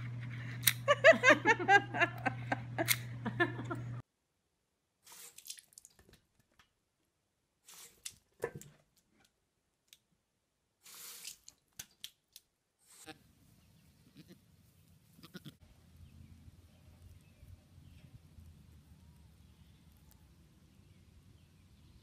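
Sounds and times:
low outdoor rumble: 0.0 - 4.0, 13.1 - 22.0
baby goat bleating: 14.1 - 14.4, 15.2 - 15.6.

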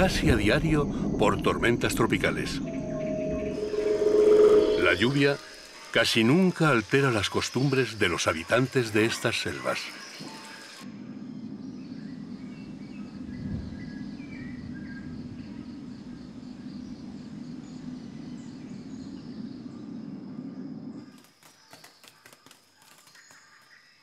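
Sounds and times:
low rumbling noise: 0.0 - 6.0, 10.8 - 21.0
high pulsing insect trill: 0.0 - 24.0
bird chirps: 0.8 - 6.0.

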